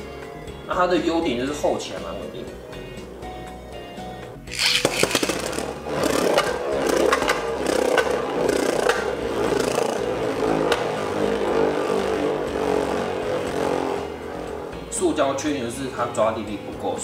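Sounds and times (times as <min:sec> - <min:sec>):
spinning top buzzing whir: 0:00.0 - 0:16.8
spinning top clicking on plastic: 0:04.5 - 0:05.6.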